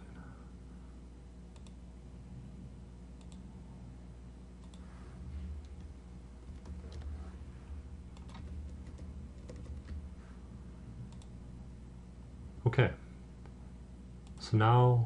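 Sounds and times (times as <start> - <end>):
low electrical hum: 0.0 - 15.0
faint computer mouse clicks: 1.5 - 1.8, 3.2 - 3.5, 4.6 - 4.9, 11.1 - 11.3.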